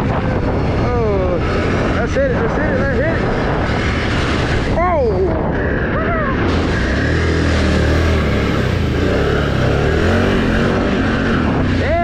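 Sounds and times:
atv engine running: 5.7s - 12.0s
tyres churning through mud and water: 6.4s - 12.0s.

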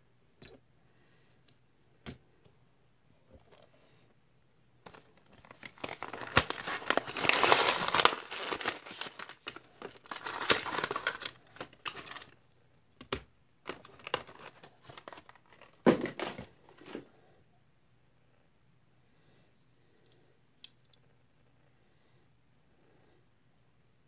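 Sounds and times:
plastic packaging crinkling and tearing: 4.9s - 12.4s, 13.7s - 16.3s.

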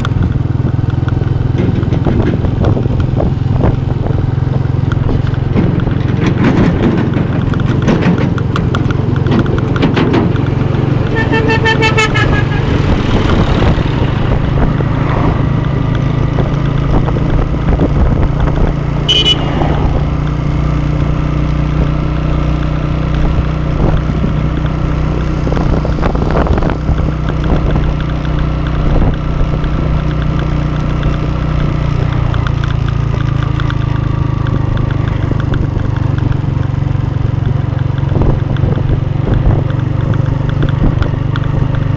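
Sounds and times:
motorcycle engine running: 0.0s - 41.9s
vehicle horn honking: 11.1s - 12.8s, 19.0s - 19.6s.

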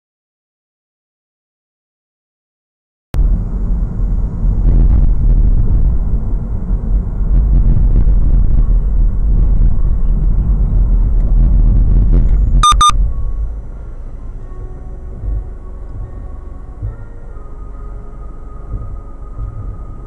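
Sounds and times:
car road and engine noise: 3.2s - 20.0s
short high beeps: 12.6s - 13.0s.

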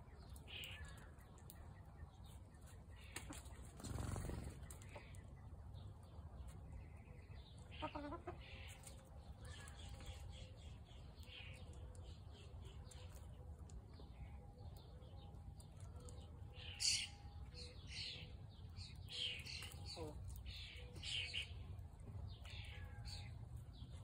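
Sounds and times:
chickens clucking: 2.8s - 5.6s, 7.1s - 9.1s, 19.0s - 21.4s.

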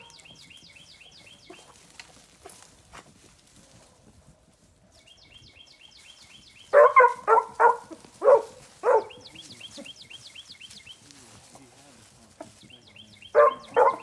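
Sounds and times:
songbird singing: 0.0s - 2.8s, 4.8s - 14.0s
dog barking: 6.7s - 9.3s, 13.3s - 14.0s.

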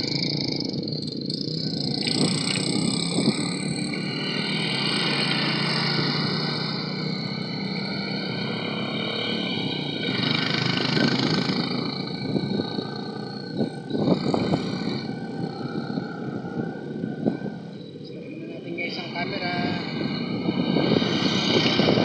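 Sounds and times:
bicycle riding on paved road: 0.0s - 18.0s
motor traffic passing: 0.0s - 22.0s.

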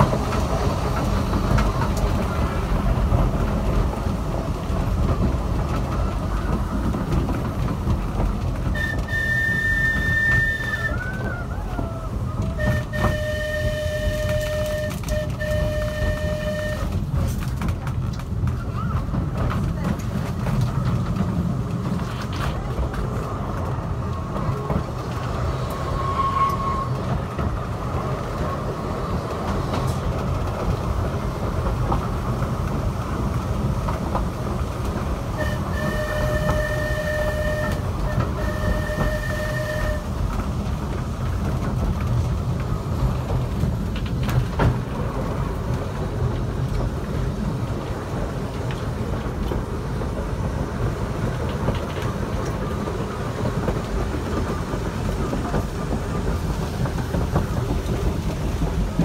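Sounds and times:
tram wheels rumbling on rail: 0.0s - 59.0s
tram warning horn toots: 8.5s - 17.4s, 23.6s - 28.9s, 35.2s - 41.4s.

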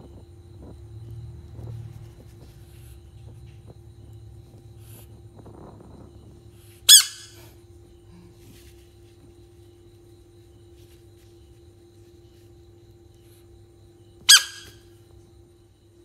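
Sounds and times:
faint steady hum: 0.0s - 16.0s
high-pitched squeak: 6.9s - 7.4s, 14.3s - 14.8s.

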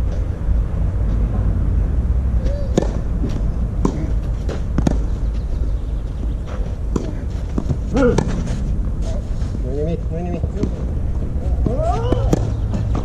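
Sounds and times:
steady low rumble: 0.0s - 13.0s
tennis ball bouncing: 2.4s - 5.6s, 6.3s - 8.5s, 10.3s - 10.9s, 11.5s - 13.0s
rackets hitting tennis ball: 2.4s - 9.3s, 10.3s - 13.0s.

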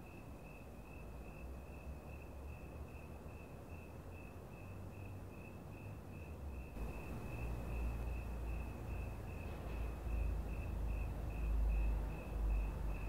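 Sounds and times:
cricket chirping: 0.0s - 13.0s.

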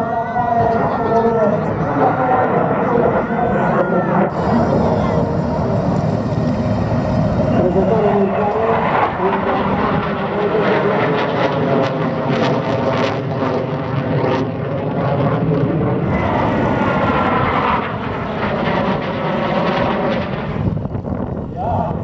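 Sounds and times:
jet fighter engine roar: 0.0s - 22.0s.

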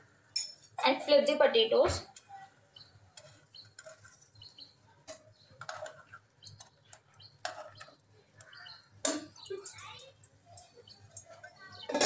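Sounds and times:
spatula and tongs tapping pan: 5.0s - 12.0s.

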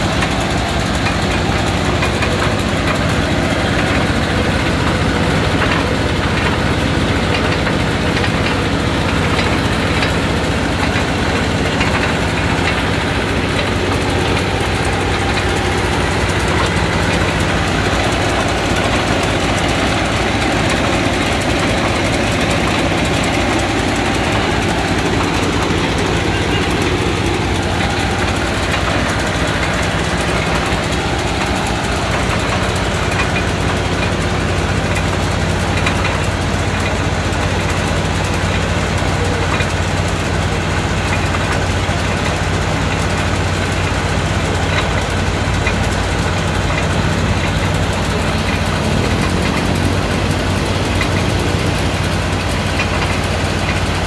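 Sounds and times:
drilling rig engine drone: 0.0s - 54.0s.

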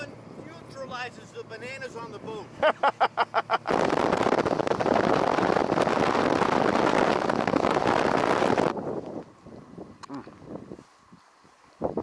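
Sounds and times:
boat hull and water noise: 0.0s - 12.0s
wind buffeting microphone: 3.4s - 12.0s.

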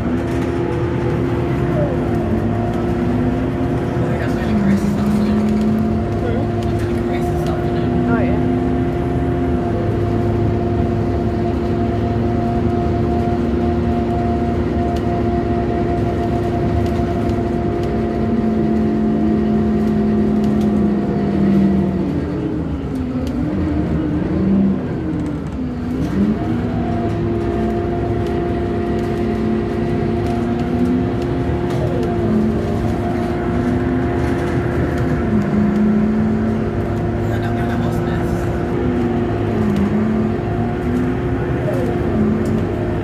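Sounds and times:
bus engine droning whine: 0.0s - 43.0s.

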